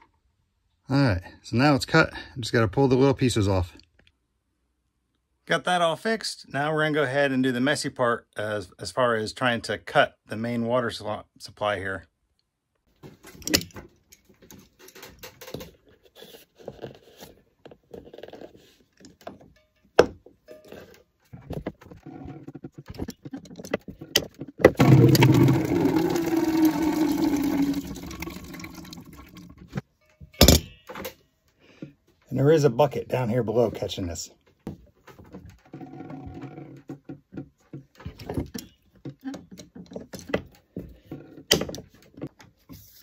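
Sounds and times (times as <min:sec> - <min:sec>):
plastic pipe clicks and scrapes: 0:20.6 - 0:26.1
water rushing into bucket: 0:24.7 - 0:29.8.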